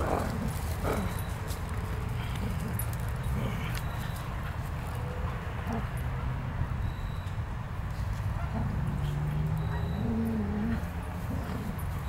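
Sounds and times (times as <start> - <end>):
dogs vocalising: 2.1 - 6.2, 8.4 - 12.0.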